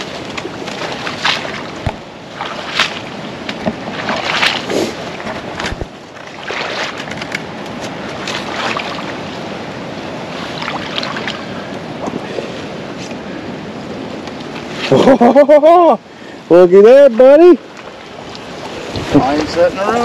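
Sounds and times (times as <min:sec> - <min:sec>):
water sloshing around legs: 0:00.0 - 0:15.4.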